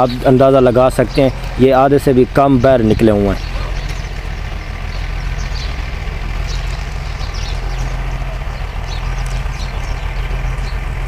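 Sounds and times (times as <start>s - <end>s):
low machine hum: 0.0s - 11.0s
faint high bird chirps: 2.5s - 10.9s.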